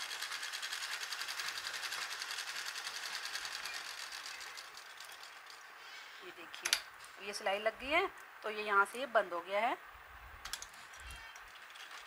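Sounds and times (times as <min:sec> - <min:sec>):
sewing machine stitching: 0:00.0 - 0:05.4.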